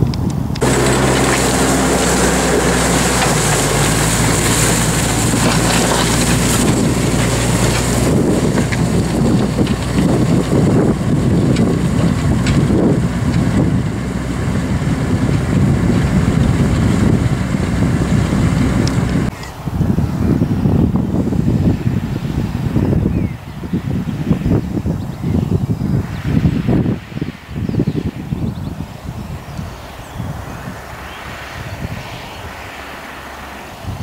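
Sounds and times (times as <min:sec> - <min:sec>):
tractor engine running under load: 0:00.0 - 0:24.1
wind buffeting microphone: 0:00.0 - 0:34.0.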